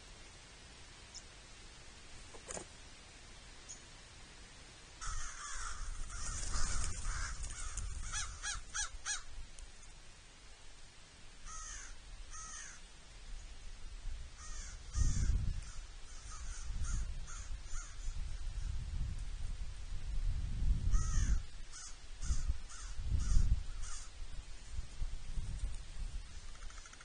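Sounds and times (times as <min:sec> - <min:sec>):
crows cawing: 0:05.0 - 0:09.3, 0:11.4 - 0:12.8, 0:14.4 - 0:18.1, 0:20.9 - 0:24.1, 0:26.5 - 0:27.0.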